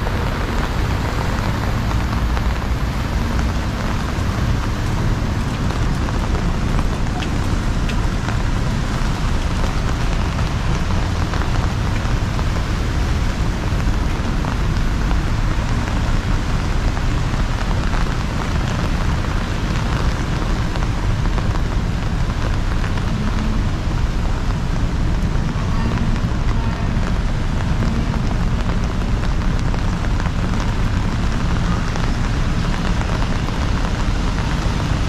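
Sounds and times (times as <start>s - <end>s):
constant low rumble: 0.0s - 35.0s
heavy rain pouring: 0.0s - 35.0s.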